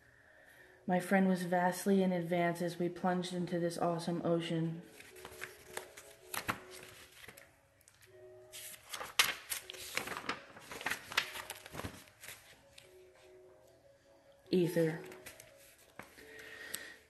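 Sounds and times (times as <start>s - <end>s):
paper rustling and crinkling: 4.8s - 13.1s, 14.8s - 16.4s.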